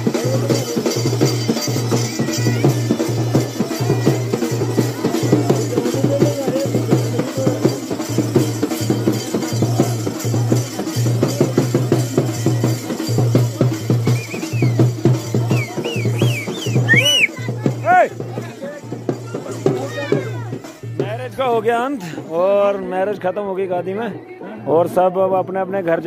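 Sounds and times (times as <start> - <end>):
dhol drumming fast rhythm: 0.0 - 24.2.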